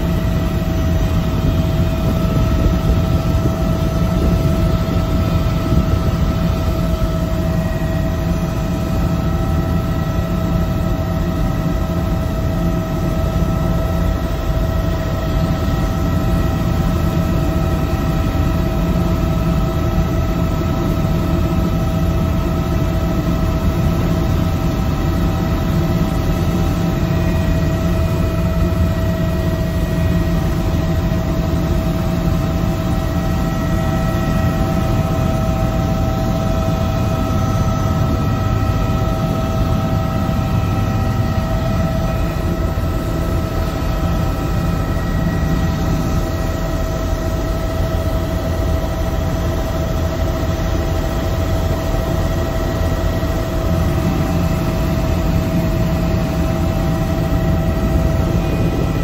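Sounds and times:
constant whine: 0:00.0 - 0:59.0
helicopter rotor and engine rumble: 0:00.0 - 0:59.0.

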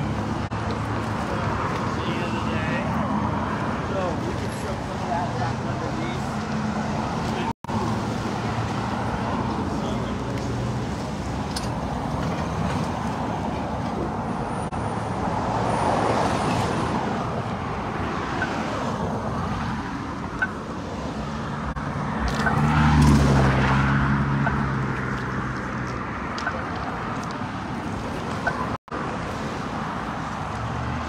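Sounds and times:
cars passing: 0:00.0 - 0:31.0
loud vehicle engine passing: 0:21.2 - 0:26.1.

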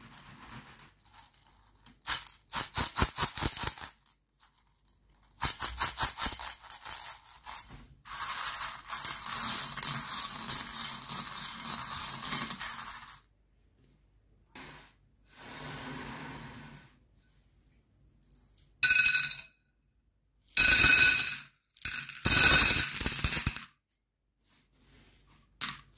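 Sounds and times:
hand stirring candies rattle: 0:00.0 - 0:13.3.

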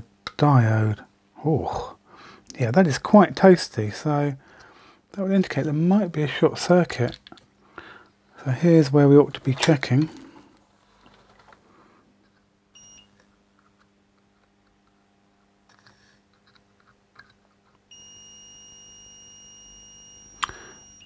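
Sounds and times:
multimeter continuity beeps: 0:12.7 - 0:13.2, 0:17.9 - 0:21.0.

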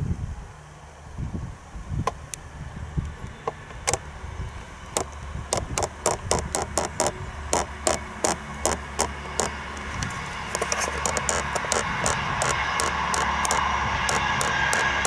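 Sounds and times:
distant train rumble: 0:00.0 - 0:15.0
tripod head creaking and clicking: 0:03.0 - 0:15.0.

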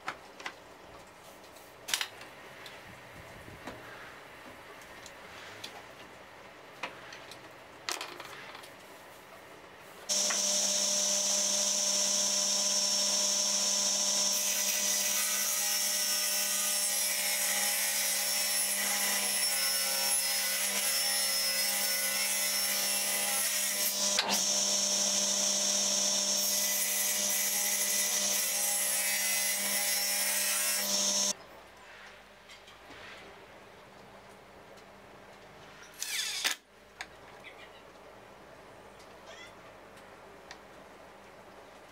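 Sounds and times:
table saw cutting wood: 0:10.1 - 0:31.3.

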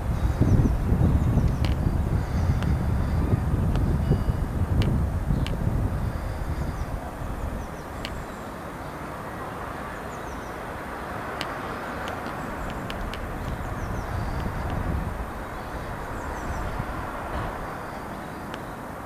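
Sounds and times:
faint bird chirps: 0:05.3 - 0:09.0.

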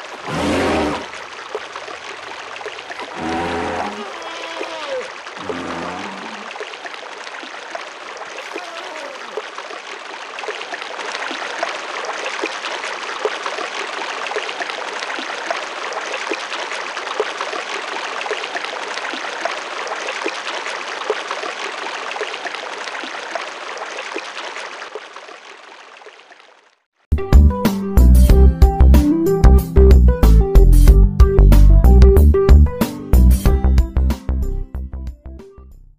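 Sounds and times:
stream water babbling: 0:00.0 - 0:27.1.

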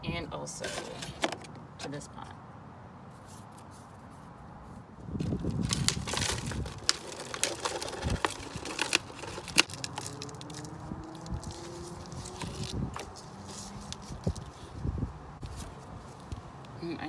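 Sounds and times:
scooping potting soil: 0:00.4 - 0:01.2, 0:05.2 - 0:14.8
hands handling plastic pots: 0:00.4 - 0:02.3, 0:05.2 - 0:14.8
rustling with sharp crinkles: 0:03.1 - 0:16.6.

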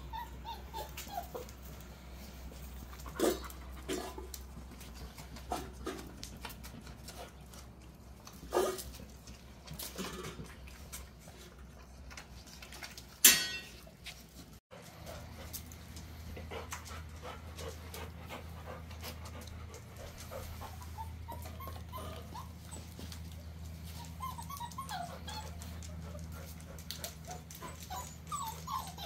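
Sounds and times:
puppies whimpering and squeaking: 0:00.0 - 0:10.0, 0:20.0 - 0:29.0.

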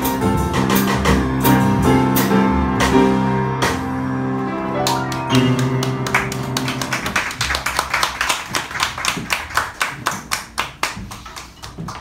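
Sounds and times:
small audience clapping: 0:04.8 - 0:12.0.

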